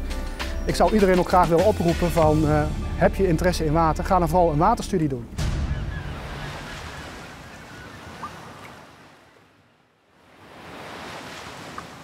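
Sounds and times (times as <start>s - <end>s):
ocean surf: 5.0s - 12.0s.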